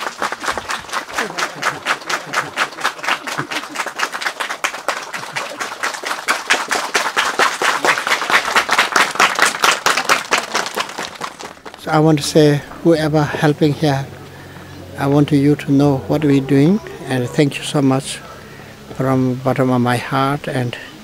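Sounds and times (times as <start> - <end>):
crowd clapping in rhythm: 0.0 - 12.2.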